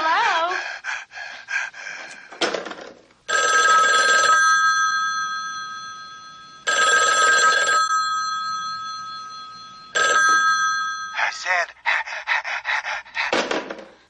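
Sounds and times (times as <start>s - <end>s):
telephone bell ringing: 3.3s - 11.5s.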